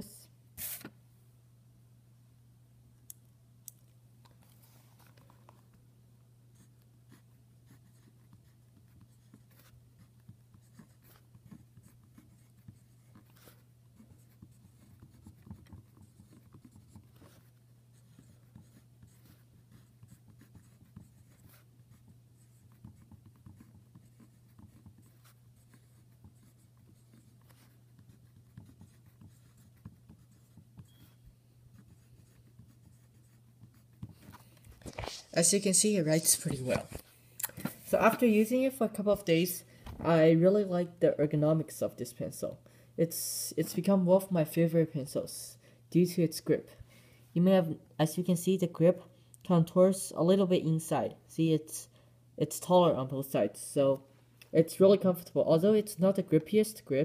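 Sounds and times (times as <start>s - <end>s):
low steady hum: 0.0s - 57.0s
pencil scratching on paper: 6.6s - 36.4s.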